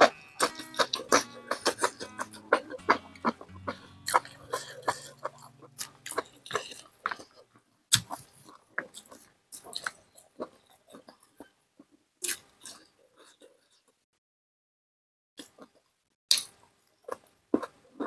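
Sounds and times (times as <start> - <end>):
person chewing and biting food: 0.0 - 11.6, 12.2 - 13.8, 15.4 - 18.0.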